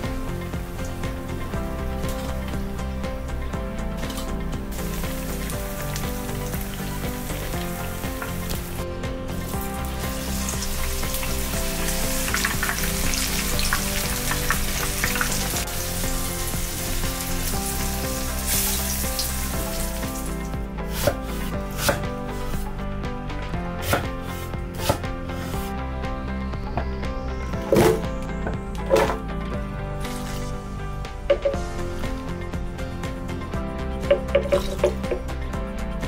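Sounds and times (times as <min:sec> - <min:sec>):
tempura sizzling in hot oil: 0:00.1 - 0:22.7, 0:30.0 - 0:30.8
knife chopping on wooden board: 0:20.9 - 0:22.1, 0:23.8 - 0:25.0.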